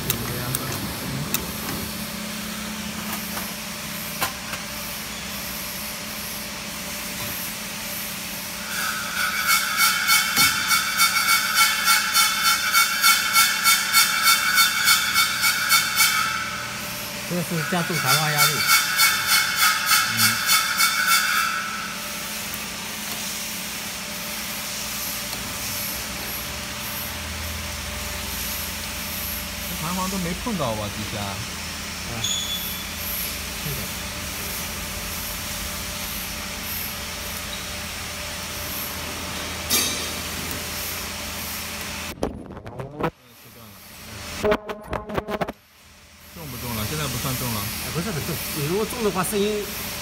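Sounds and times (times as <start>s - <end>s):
machine hum and hiss: 0.0s - 50.0s
steady high tone: 8.6s - 22.3s.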